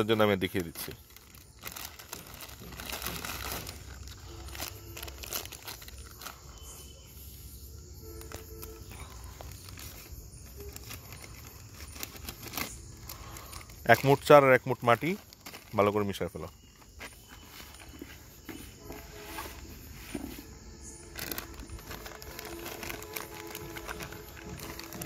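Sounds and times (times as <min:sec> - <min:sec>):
plastic packet crinkling: 0:00.0 - 0:06.8, 0:08.1 - 0:16.5, 0:20.8 - 0:25.0.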